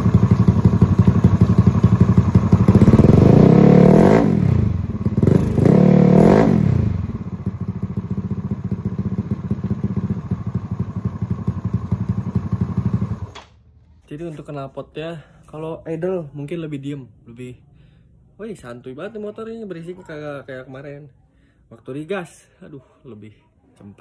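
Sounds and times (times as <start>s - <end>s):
scooter engine revving and idling: 0.0s - 13.4s.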